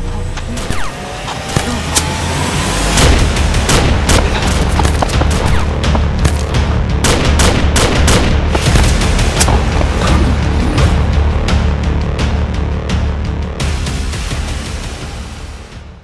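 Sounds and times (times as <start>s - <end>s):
music with low drone: 0.0s - 16.0s
rifle shots: 3.0s - 9.5s.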